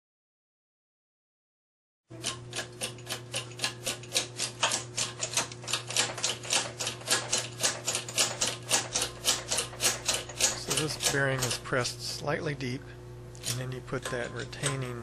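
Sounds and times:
steady low hum: 0:02.1 - 0:15.0
rapid mechanical clicking: 0:02.2 - 0:11.8, 0:13.4 - 0:15.0.

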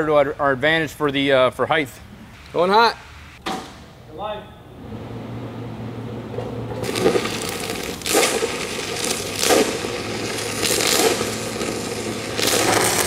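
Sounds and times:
welding arc crackling: 0:06.7 - 0:13.0.

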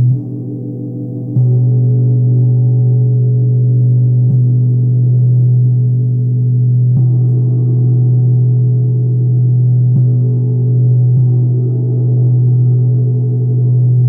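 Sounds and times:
gong struck with mallet: 0:00.0 - 0:05.3.

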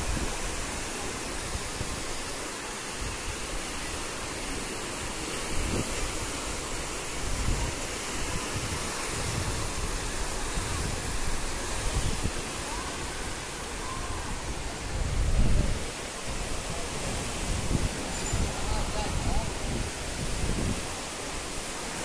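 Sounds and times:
floodwater rushing: 0:00.0 - 0:22.0
wind buffeting microphone: 0:07.0 - 0:22.0.

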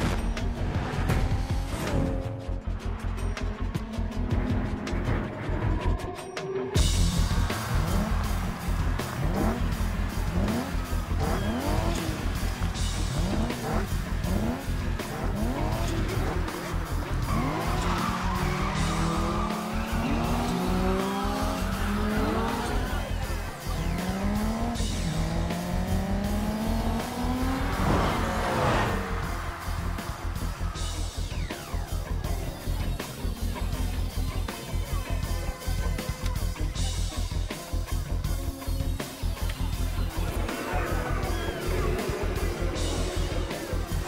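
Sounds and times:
music with heavy bass beat: 0:00.0 - 0:44.0
racing car engines revving: 0:00.0 - 0:44.0
car rushing by: 0:23.7 - 0:31.8.

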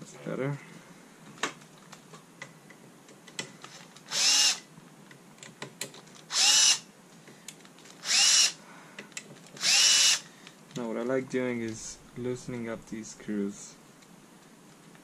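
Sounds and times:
cordless drill whirring: 0:03.7 - 0:04.7, 0:06.3 - 0:06.8, 0:08.0 - 0:08.6, 0:09.6 - 0:10.2.

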